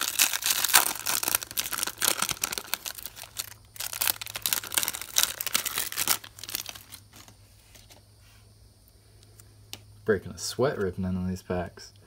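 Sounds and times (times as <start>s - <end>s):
card pack wrapper crinkling and tearing: 0.0s - 8.0s.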